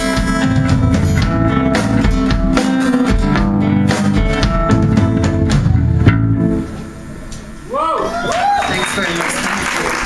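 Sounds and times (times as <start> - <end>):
strummed acoustic guitar: 0.0 - 6.9
drum kit beats: 0.0 - 7.6
electric guitar: 0.0 - 7.6
bass guitar: 0.0 - 7.7.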